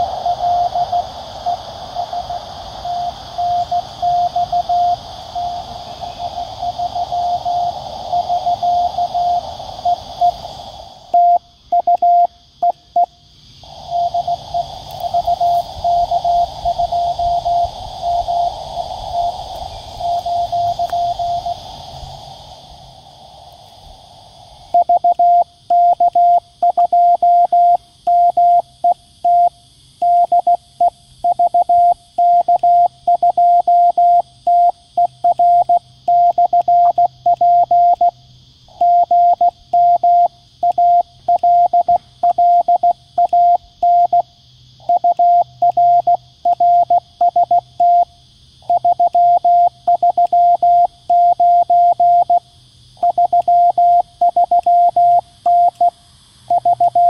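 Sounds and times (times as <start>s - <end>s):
morse code beeps: 2.9s - 5.6s, 11.1s - 13.1s, 13.9s - 18.5s, 20.0s - 21.6s, 24.7s - 28.6s, 31.3s - 38.1s, 38.8s - 44.2s, 44.8s - 48.1s, 48.7s - 52.4s, 53.0s - 55.9s, 56.5s - 57.0s.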